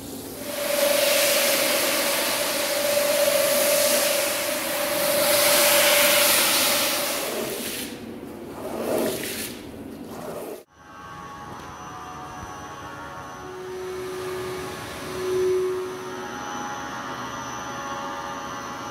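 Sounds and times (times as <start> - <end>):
carpet scrubber motor hum: 0.3 - 7.6
spinning brush swishing: 0.4 - 10.7
hand brushing wet carpet: 0.6 - 10.6.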